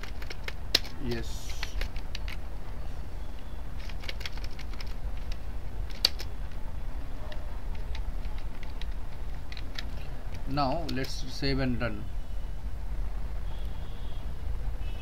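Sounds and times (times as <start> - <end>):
computer keyboard clicks: 0.0 - 2.4, 3.8 - 6.3, 7.3 - 11.2.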